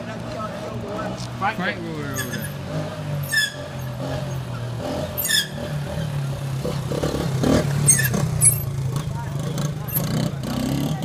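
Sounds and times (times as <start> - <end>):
quad bike engine running: 3.6 - 11.0.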